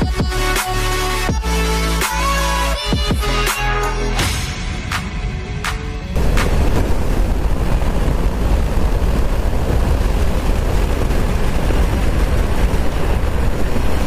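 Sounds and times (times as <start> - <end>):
wind and road noise: 4.2 - 14.0
wind buffeting microphone: 6.1 - 14.0.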